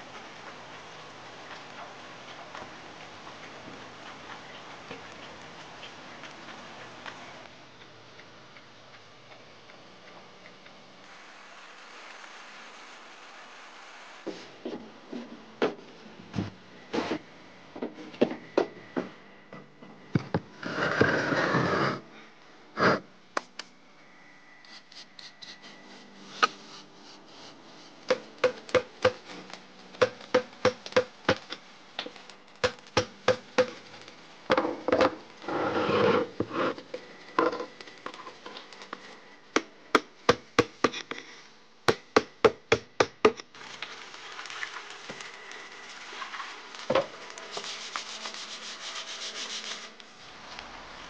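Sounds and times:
scraping on stone: 0:20.6 - 0:22.0, 0:22.8 - 0:23.0, 0:35.4 - 0:37.7.

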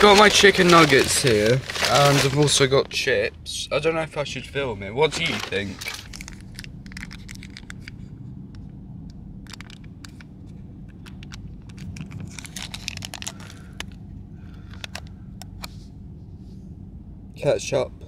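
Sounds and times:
foil lid peeling and crackling: 0:00.0 - 0:03.0, 0:05.0 - 0:07.8, 0:11.2 - 0:13.8
car cabin rumble: 0:00.0 - 0:18.0.

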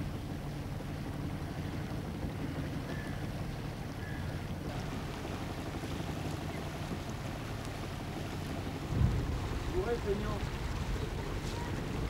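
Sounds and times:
boat engine droning: 0:00.0 - 0:12.0
wind noise on microphone: 0:08.8 - 0:12.0.

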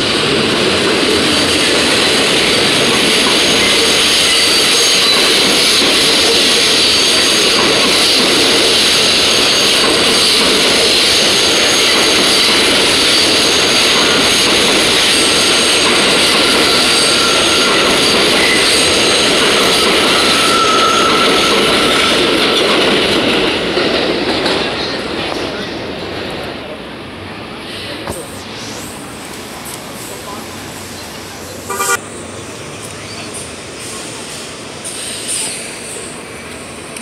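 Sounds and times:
elevated train rumbling: 0:00.0 - 0:37.0
wheels squealing: 0:15.1 - 0:22.3.

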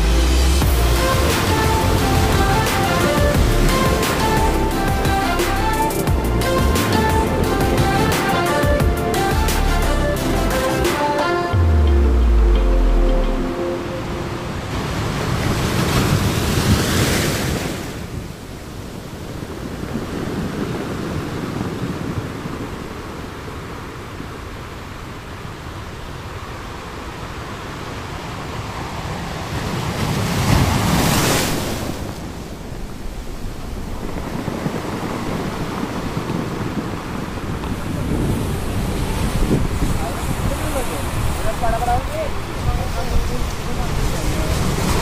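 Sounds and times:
waves breaking: 0:00.0 - 0:45.0
sea waves washing against rocks: 0:00.2 - 0:11.6, 0:14.2 - 0:45.0
wind buffeting microphone: 0:28.1 - 0:45.0.

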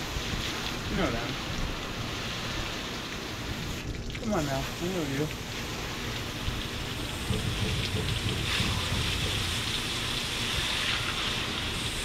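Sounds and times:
water spray pattering on fish: 0:00.0 - 0:12.0
hose nozzle spray hissing: 0:07.0 - 0:12.0.

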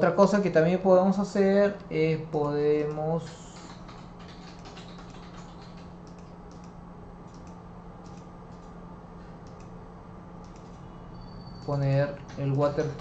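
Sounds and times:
low electrical hum: 0:00.0 - 0:13.0
computer mouse clicking: 0:02.8 - 0:08.8, 0:09.4 - 0:09.8, 0:10.4 - 0:10.9, 0:11.5 - 0:13.0.

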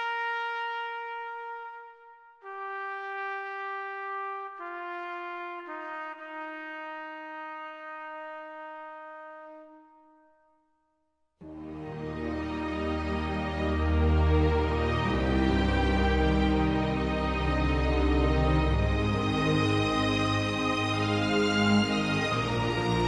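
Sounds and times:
solo trumpet melody: 0:00.0 - 0:10.8.

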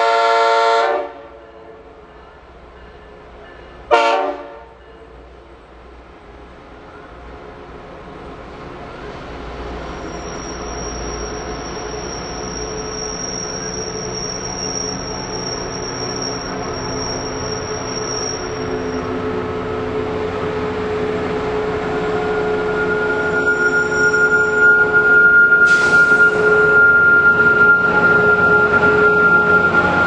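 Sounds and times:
diesel locomotive engine rumble: 0:00.0 - 0:30.0
high-pitched wheel squeal: 0:09.9 - 0:19.2, 0:22.2 - 0:30.0.

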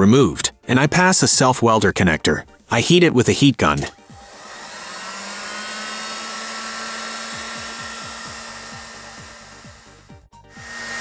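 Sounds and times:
heat gun blowing: 0:03.8 - 0:11.0.

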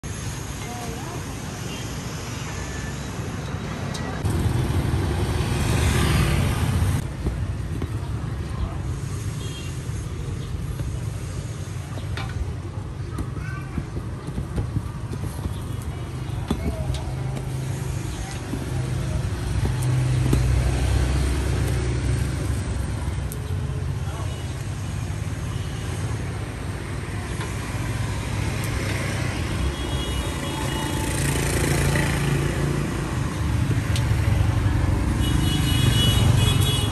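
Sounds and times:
vehicle engine humming: 0:00.0 - 0:36.9
motorbikes passing: 0:00.1 - 0:36.9.

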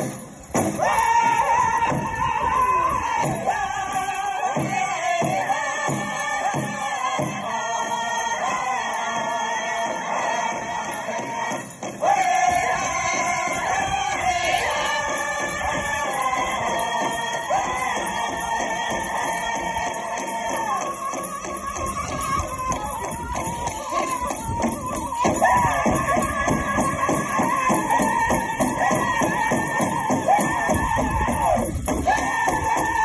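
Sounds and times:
group of voices singing: 0:00.0 - 0:33.0
steady drumbeat: 0:09.0 - 0:33.0.

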